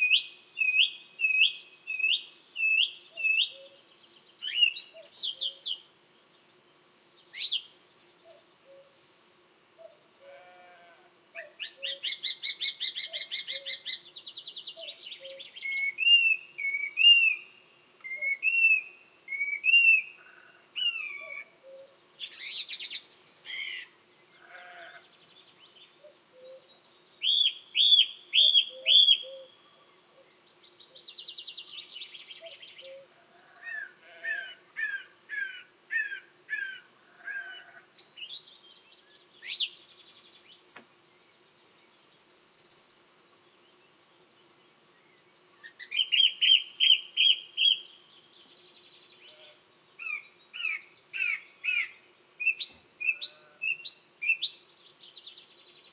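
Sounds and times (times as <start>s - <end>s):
quiet bird calls: 9.8s - 55.9s
thrush singing whistled phrases: 18.1s - 20.1s.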